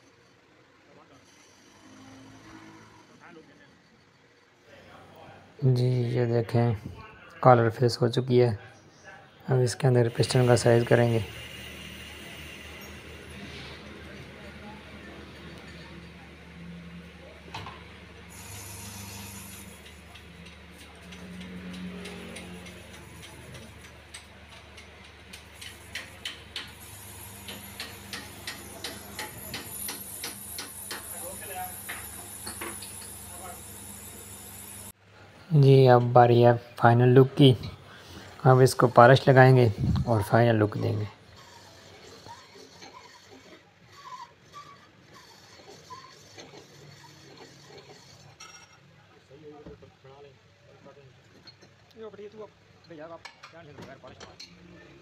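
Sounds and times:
boring machine motor hum: 0:17.9 - 0:34.9
thin high whine: 0:26.8 - 0:35.0.

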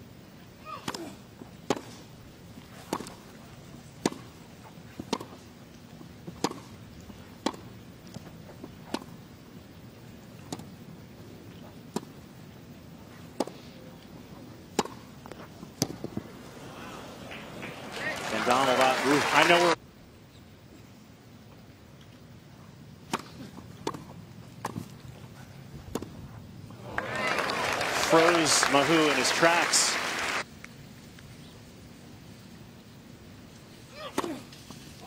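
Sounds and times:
tennis ball struck with rackets: 0:01.7 - 0:02.0, 0:02.8 - 0:03.2, 0:04.0 - 0:04.3, 0:05.0 - 0:05.4, 0:06.3 - 0:06.7, 0:07.4 - 0:07.7, 0:14.7 - 0:15.1, 0:23.1 - 0:24.9.

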